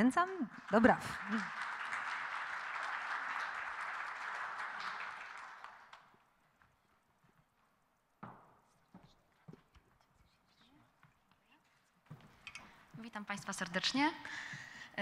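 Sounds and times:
audience applauding: 0:00.0 - 0:06.4
footsteps on stage: 0:06.0 - 0:13.7.

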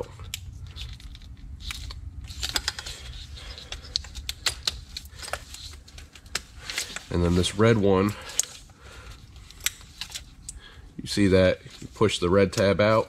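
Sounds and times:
plastic connectors clicking and rattling: 0:00.0 - 0:07.1
faint steady low hum: 0:00.0 - 0:13.0.

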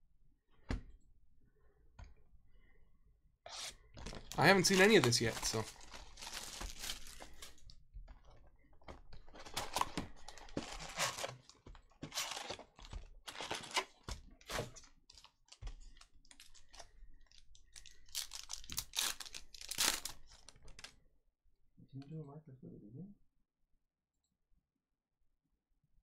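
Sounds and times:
card wrappers crinkling and tearing: 0:04.0 - 0:07.6, 0:09.2 - 0:14.0, 0:15.1 - 0:20.9.

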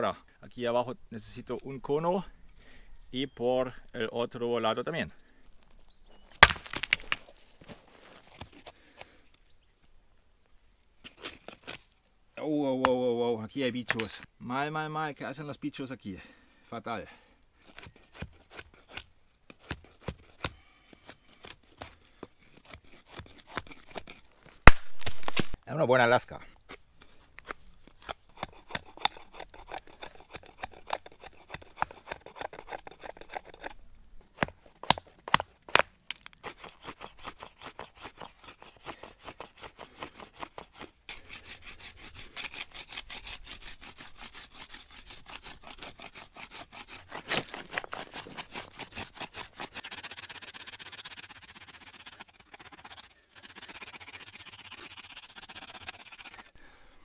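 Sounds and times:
stone flake scraping wood: 0:06.2 - 0:09.1, 0:11.0 - 0:12.1, 0:17.6 - 0:25.6, 0:26.7 - 0:56.6.

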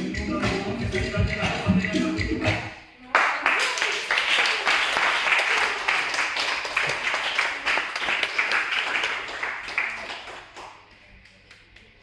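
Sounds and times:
small group applauding: 0:03.0 - 0:12.0.

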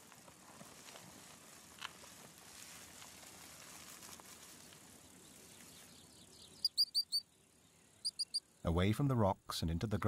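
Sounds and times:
outdoor background hiss: 0:00.0 - 0:10.0
high sharp chirping calls: 0:05.9 - 0:07.3, 0:07.9 - 0:08.5.

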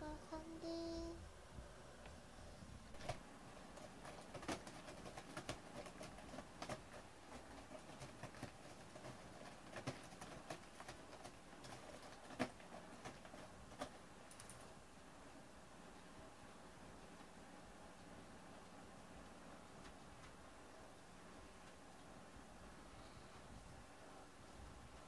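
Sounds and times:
cat claws scratching cardboard: 0:03.0 - 0:14.0.

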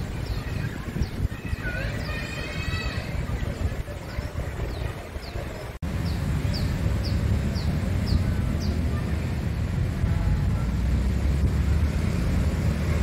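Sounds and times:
distant traffic rumble: 0:00.0 - 0:13.0
wind on microphone: 0:00.0 - 0:13.0
bird chirping: 0:04.1 - 0:09.0.

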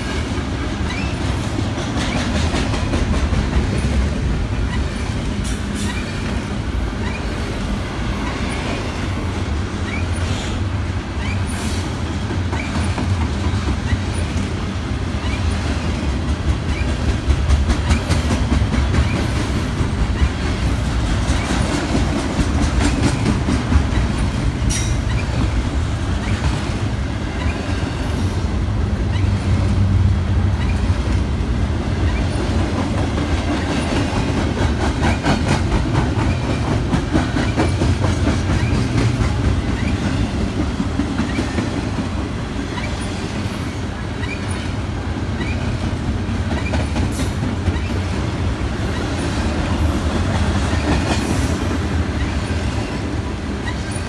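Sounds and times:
train rumbling past: 0:00.0 - 0:54.0
wheel squeaks: 0:23.0 - 0:25.5.

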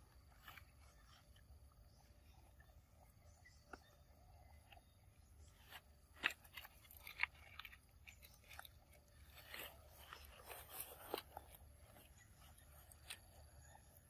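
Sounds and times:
chewing crunching and clicking: 0:00.1 - 0:14.0
soft rustles: 0:05.4 - 0:13.7.

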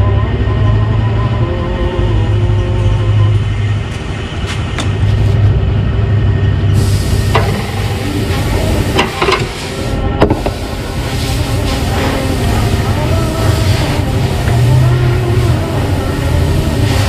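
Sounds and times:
car engine idling: 0:05.7 - 0:17.0.

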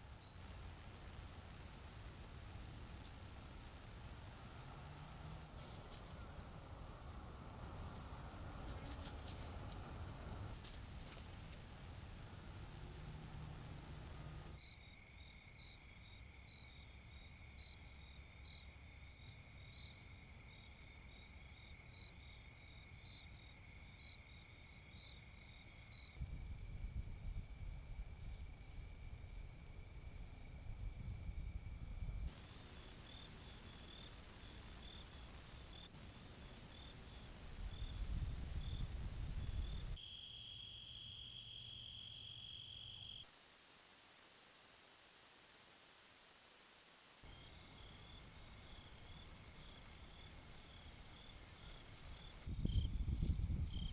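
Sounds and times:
crickets chirping: 0:00.1 - 0:00.8, 0:01.4 - 0:43.7, 0:47.3 - 0:53.9
high insect trill: 0:14.5 - 0:43.3, 0:47.3 - 0:53.9.

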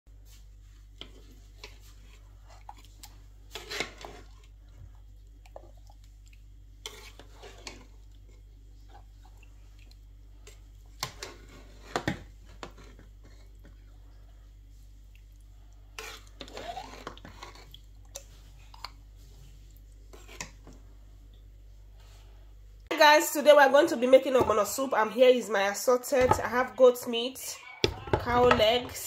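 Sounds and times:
spoon scraping a pot: 0:03.5 - 0:04.4, 0:06.8 - 0:07.9, 0:16.0 - 0:17.8, 0:20.1 - 0:20.6.

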